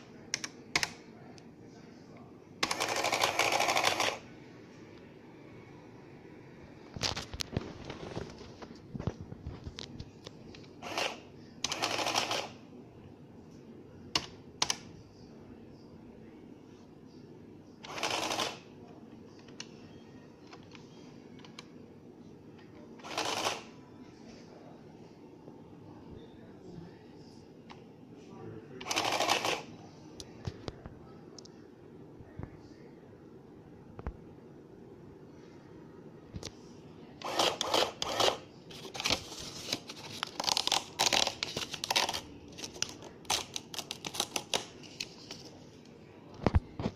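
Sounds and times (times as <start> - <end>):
printing calculator chattering: 2.6 - 4.3, 10.8 - 12.6, 17.8 - 18.8, 23.0 - 23.7, 28.8 - 29.7, 37.2 - 39.2
paper crinkling: 38.7 - 45.8.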